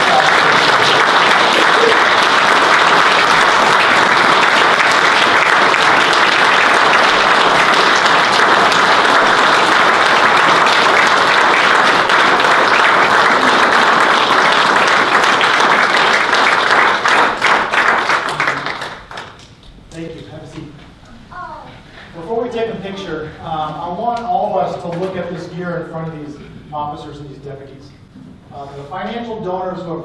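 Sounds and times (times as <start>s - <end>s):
audience applauding: 0.0s - 19.7s.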